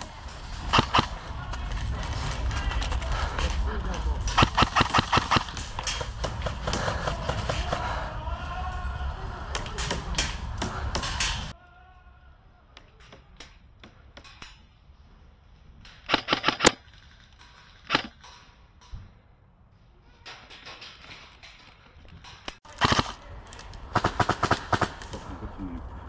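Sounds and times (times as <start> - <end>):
airsoft rifle shots: 0.7 - 1.1, 4.3 - 7.8, 16.0 - 16.8, 22.6 - 23.2, 23.9 - 25.3.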